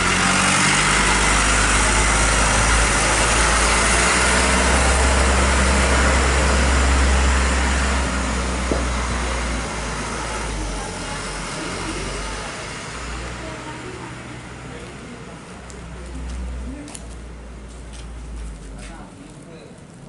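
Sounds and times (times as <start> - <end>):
fire truck engine running: 0.0 - 20.0.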